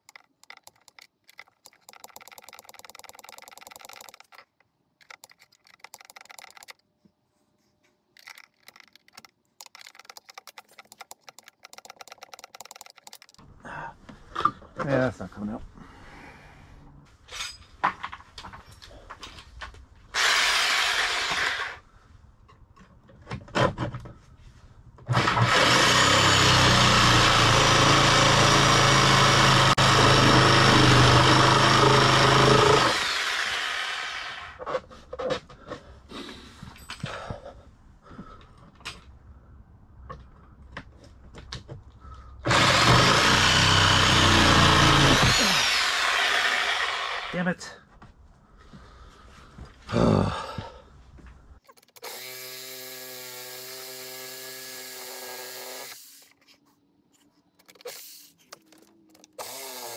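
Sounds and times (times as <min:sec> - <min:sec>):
metal clicks and knocks: 0:00.0 - 0:06.8, 0:08.2 - 0:13.4
reciprocating saw cutting metal: 0:42.5 - 0:47.4.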